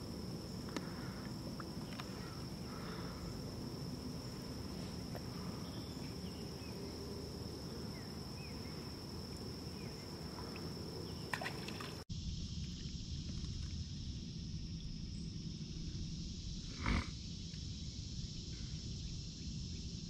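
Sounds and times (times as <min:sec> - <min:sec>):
water lapping: 0:00.0 - 0:07.0, 0:08.5 - 0:12.0.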